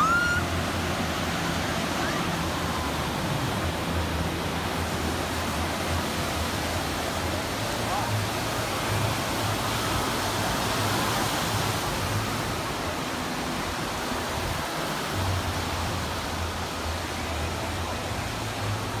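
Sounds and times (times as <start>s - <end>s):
waterfalls pouring: 0.0s - 13.6s
waves breaking: 0.0s - 19.0s.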